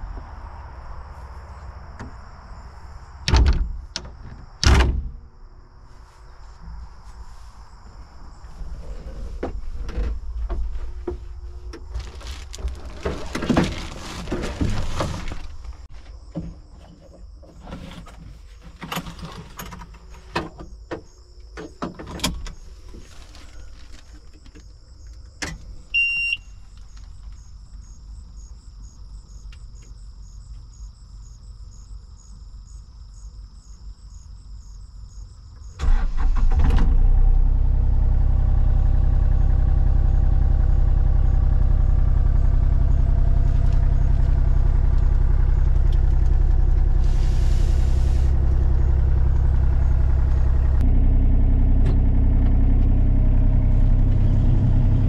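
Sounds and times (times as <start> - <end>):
short beep: 26.0 - 26.6
diesel engine starting and idling: 35.8 - 55.0.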